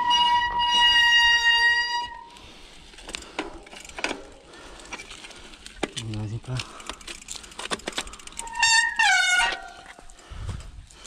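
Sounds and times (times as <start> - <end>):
bike disc brake squealing: 0.0 - 2.4, 8.2 - 10.0.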